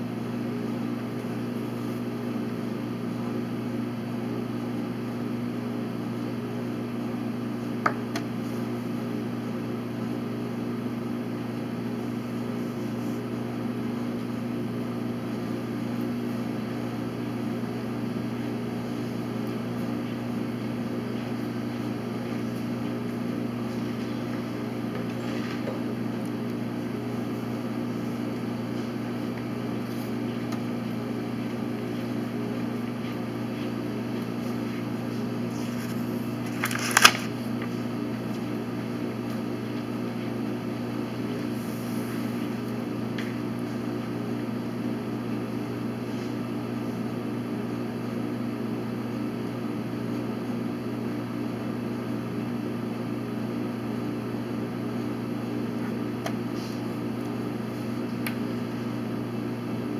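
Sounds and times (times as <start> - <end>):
steady low hum: 6.2 - 46.0.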